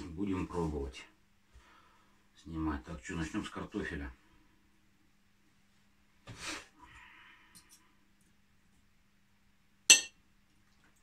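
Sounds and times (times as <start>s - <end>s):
cutlery clinking on plate: 9.9s - 10.2s.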